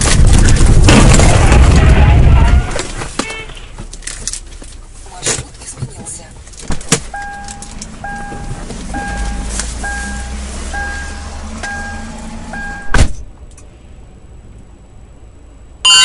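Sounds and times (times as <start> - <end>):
car rumble: 0.0 - 16.0
electronic beeps: 7.2 - 13.0
loud thump: 12.8 - 13.3.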